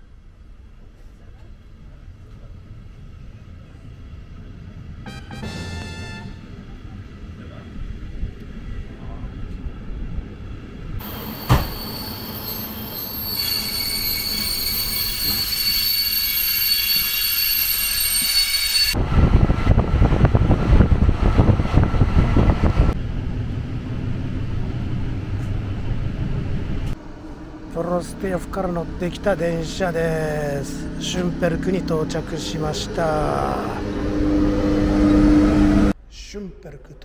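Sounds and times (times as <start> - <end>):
high metallic wheel squeal: 11.0 - 19.0, 30.4 - 36.0
train running rumble: 18.2 - 36.0.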